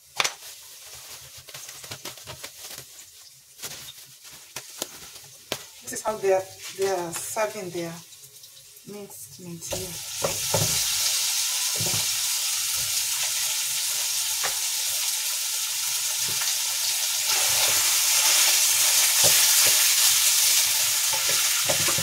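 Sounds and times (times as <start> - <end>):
meat sizzling in a frying pan: 2.8 - 22.0
spatula knocking on pan: 9.7 - 10.9.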